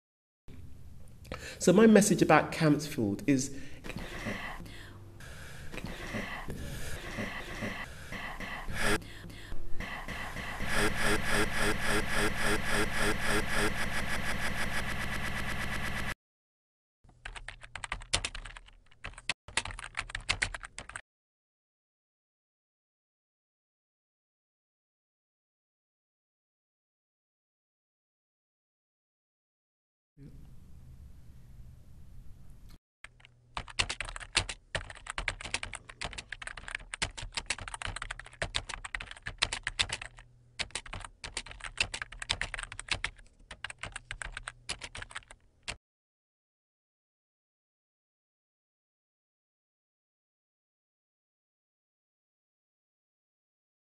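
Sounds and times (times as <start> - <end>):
computer keyboard typing: 9.8 - 16.2, 17.1 - 21.0, 33.0 - 45.8.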